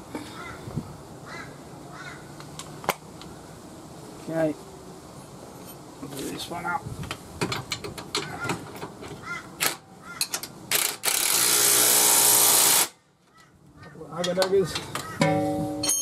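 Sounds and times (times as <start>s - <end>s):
impact wrench running: 10.7s - 13.0s.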